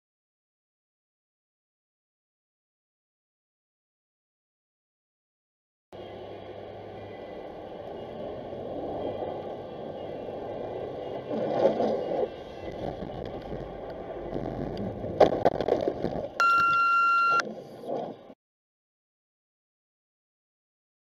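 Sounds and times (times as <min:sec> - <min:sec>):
tyre noise on snowy road: 0:06.0 - 0:16.7
high-pitched tone: 0:16.4 - 0:17.4.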